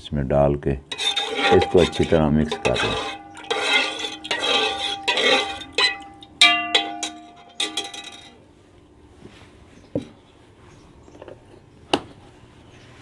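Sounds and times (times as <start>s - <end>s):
spoon clinking against metal pot: 0.9s - 8.4s
spoon sloshing and scraping in pot: 0.9s - 8.4s.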